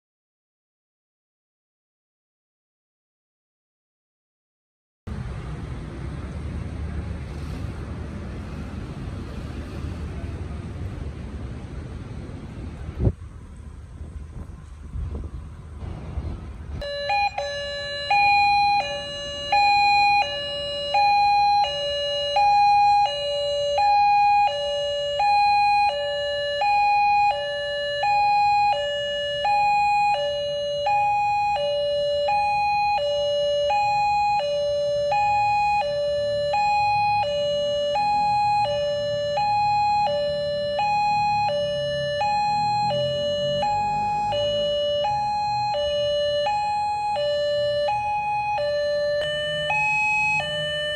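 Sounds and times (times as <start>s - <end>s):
level crossing two-tone alarm: 16.8s - 50.9s.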